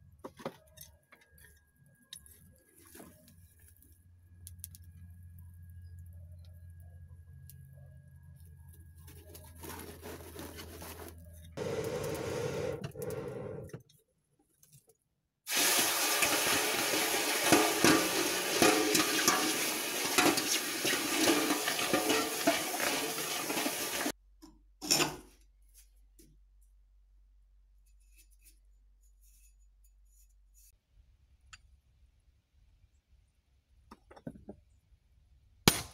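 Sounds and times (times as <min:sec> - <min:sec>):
hot steel sizzling in water: 0:15.5 - 0:24.2.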